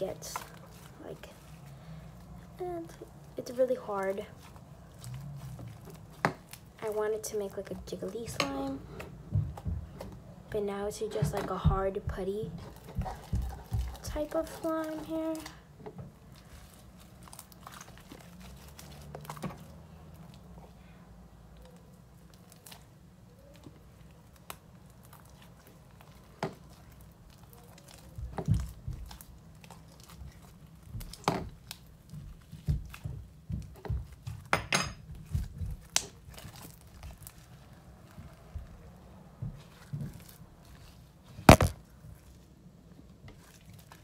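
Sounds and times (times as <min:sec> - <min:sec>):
sticky slime clicks and pops: 0:41.5 - 0:41.7.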